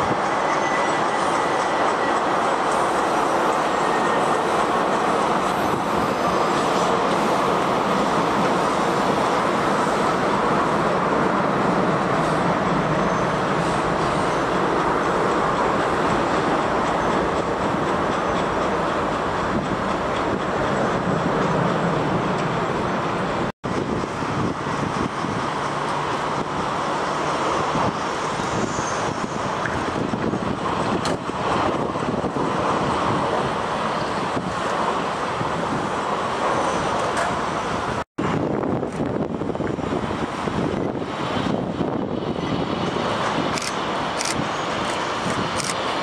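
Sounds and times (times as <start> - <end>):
jet engines landing: 0.0 - 46.0.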